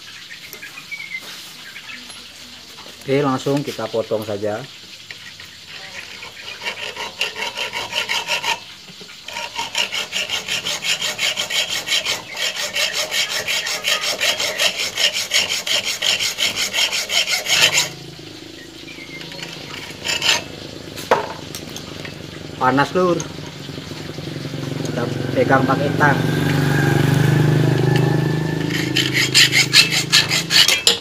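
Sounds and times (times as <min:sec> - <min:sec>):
hacksaw cutting metal: 0:05.1 - 0:25.7, 0:27.6 - 0:31.0.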